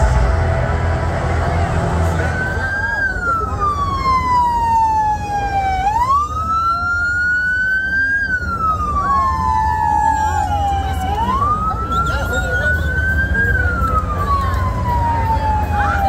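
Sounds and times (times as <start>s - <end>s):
wail siren: 2.1s - 16.0s.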